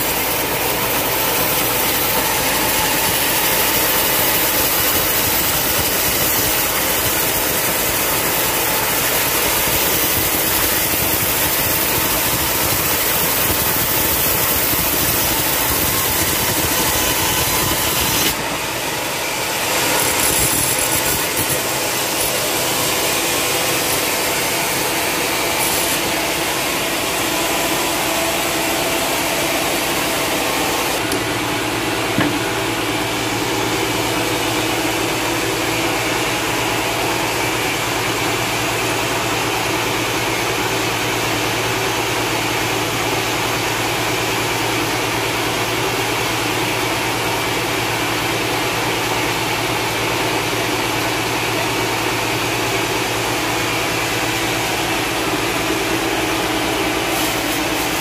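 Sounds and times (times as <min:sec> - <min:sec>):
band saw cutting timber: 0:00.0 - 0:39.2, 0:52.6 - 0:58.0.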